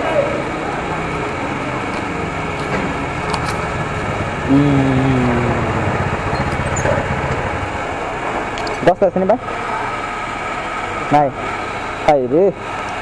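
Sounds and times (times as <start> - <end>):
vehicle engines humming: 0.0 - 13.0
engine note sliding down in pitch: 3.4 - 8.2.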